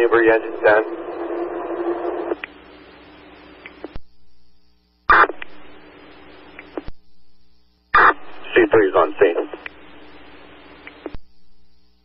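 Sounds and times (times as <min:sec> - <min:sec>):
radio static hiss: 0:00.0 - 0:12.0
loud radio burst: 0:05.1 - 0:05.4, 0:08.0 - 0:09.6.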